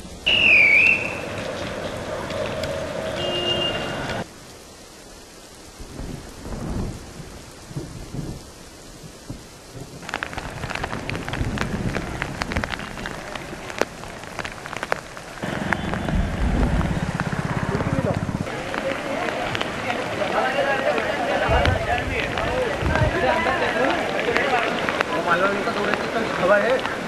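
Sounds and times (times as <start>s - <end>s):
heavy rain pouring: 0.0s - 27.0s
thunder: 5.9s - 8.5s, 9.2s - 13.1s, 15.4s - 18.5s, 21.5s - 23.4s.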